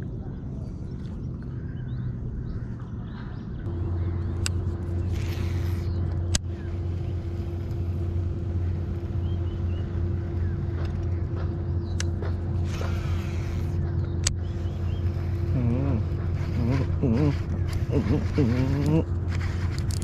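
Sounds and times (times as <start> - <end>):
boat motor humming: 0.0 - 20.0
sharp clicks: 4.4 - 6.5, 10.7 - 15.2.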